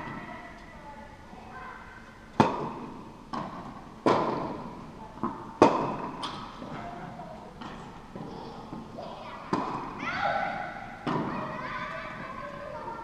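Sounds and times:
tennis ball bouncing: 2.3 - 10.0, 10.6 - 12.3
racket hitting tennis ball: 2.4 - 12.3.

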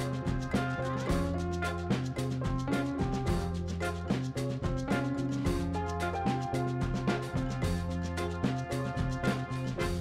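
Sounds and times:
background music with drum beat: 0.0 - 10.0.

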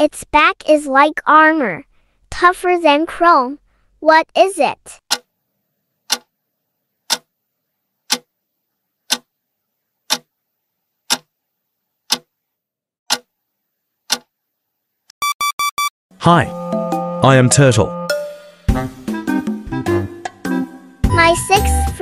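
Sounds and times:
clock ticking: 5.1 - 5.3, 6.1 - 6.3, 7.1 - 7.3, 8.1 - 8.3, 9.1 - 9.3, 10.1 - 10.3, 11.1 - 11.3, 12.1 - 12.3, 13.1 - 13.3.

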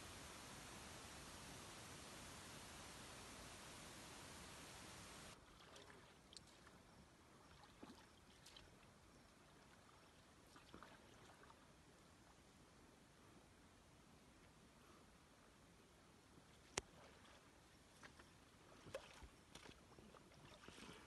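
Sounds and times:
faint small ticks: 5.2 - 6.8.

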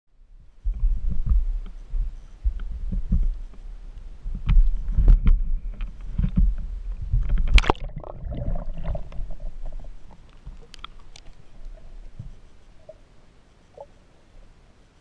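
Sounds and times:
faint underwater clicks: 0.7 - 14.0
camera handling rumble and thumps: 4.3 - 7.8
loud splash into water: 7.5 - 9.0.

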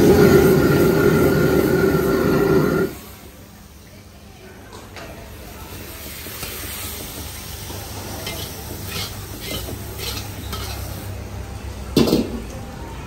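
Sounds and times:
steady sizzle: 0.0 - 4.2, 5.2 - 11.2
metal ladle scraping a wok: 8.2 - 11.0.

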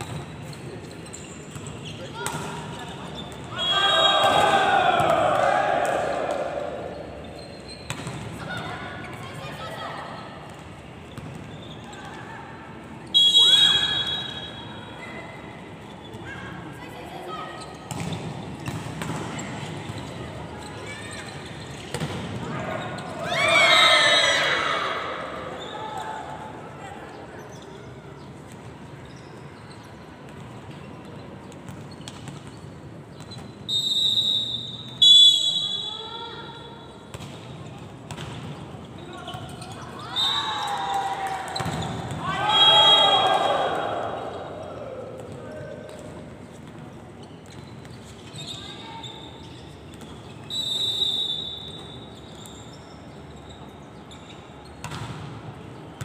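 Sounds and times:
background noise: 0.0 - 56.0
indoor sports hall ambience: 0.0 - 56.0
referee whistle blast: 13.2 - 14.7, 33.7 - 36.0, 42.4 - 43.6, 50.5 - 52.0.

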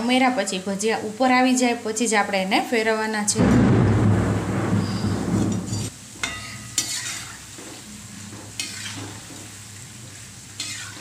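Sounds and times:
hot oil sizzling: 0.0 - 11.0
steel spoon scraping pan: 5.0 - 7.4, 8.6 - 9.2, 10.6 - 11.0.

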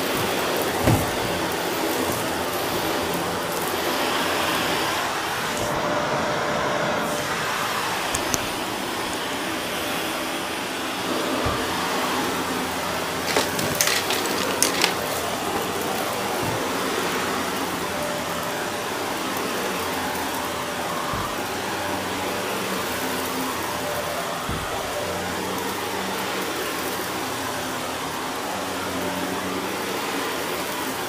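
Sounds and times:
vacuum cleaner running over carpet: 0.0 - 31.0
grit crackling in vacuum: 7.3 - 20.6.

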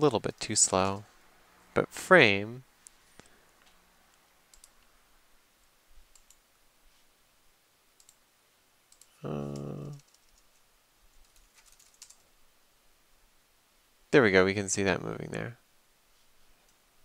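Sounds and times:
keyboard and mouse clicks: 4.1 - 4.9, 6.1 - 6.4, 8.0 - 8.2, 8.9 - 12.3
man humming: 9.2 - 10.0.

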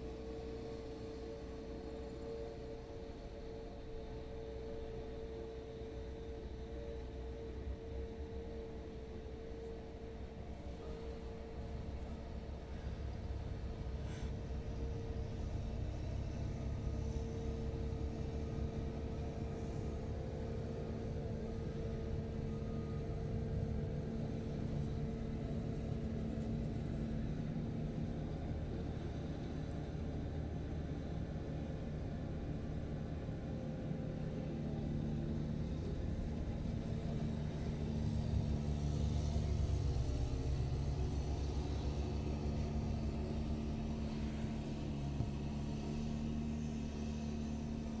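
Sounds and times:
high engine tone: 6.3 - 30.1
snowblower engine rumble: 7.0 - 48.0.

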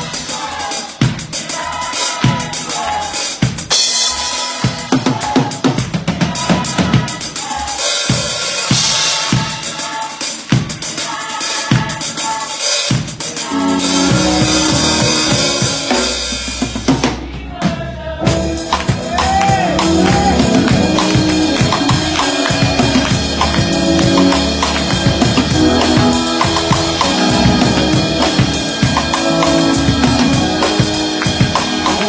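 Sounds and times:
drum kit playing a groove: 0.0 - 32.0
sustained bass notes and chords: 13.5 - 17.3, 18.2 - 32.0.

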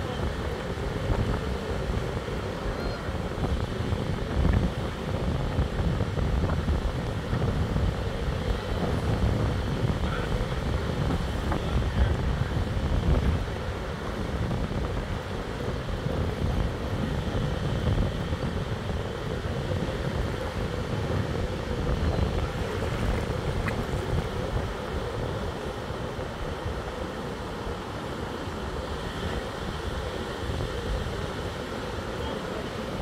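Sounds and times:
surf washing: 0.0 - 33.0
wind buffeting microphone: 0.0 - 33.0.

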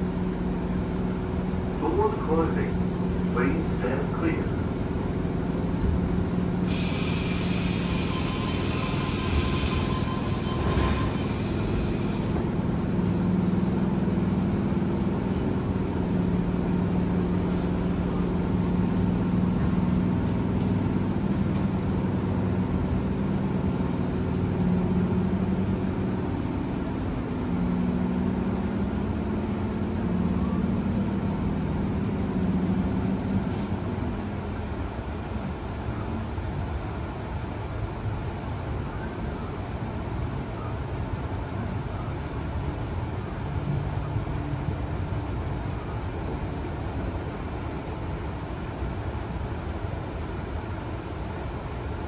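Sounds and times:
train traction motors humming: 0.0 - 52.0
wheels rumbling on rails: 0.0 - 52.0
hiss: 6.6 - 10.4.

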